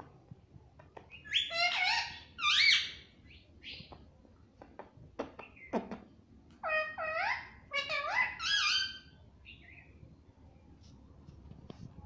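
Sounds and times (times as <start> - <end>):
parakeet calling: 1.1 - 3.9, 6.6 - 9.9.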